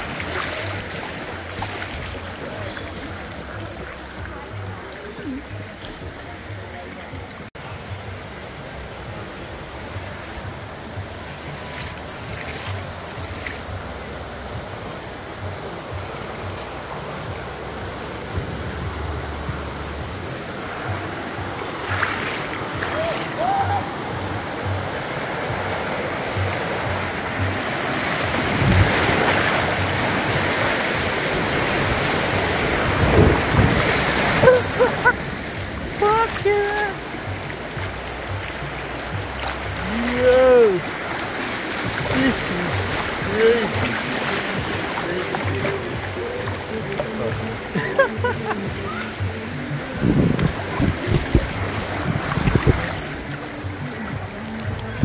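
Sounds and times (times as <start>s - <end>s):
river water rushing: 0.0s - 55.0s
water splashes: 0.0s - 55.0s
low rumbles: 15.9s - 55.0s.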